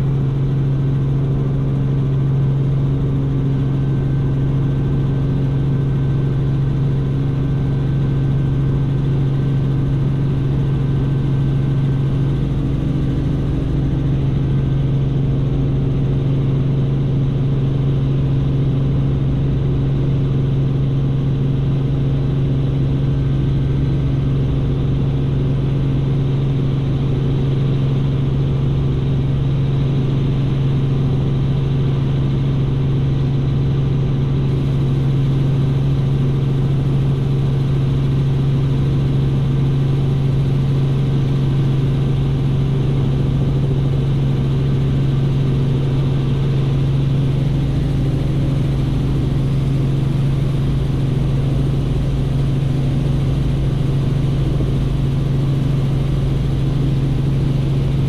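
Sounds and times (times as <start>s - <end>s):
helicopter engine and rotors droning: 0.0s - 58.0s.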